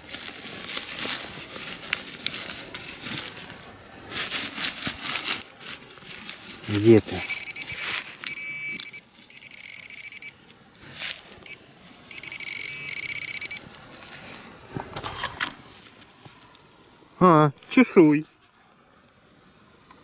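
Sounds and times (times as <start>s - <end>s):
scraping of soil and leaves: 0.0s - 8.3s, 10.4s - 12.1s, 13.6s - 18.6s
metal detector beeping: 7.0s - 10.4s, 11.4s - 13.6s.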